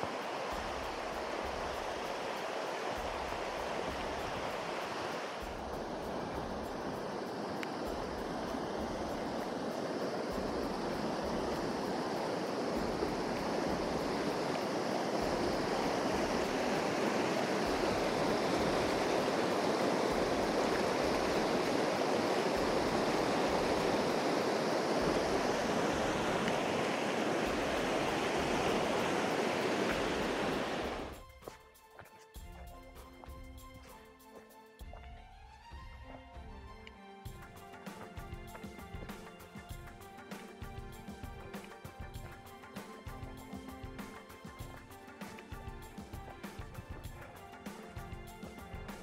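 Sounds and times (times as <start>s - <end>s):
river rushing over rapids: 0.0s - 31.2s.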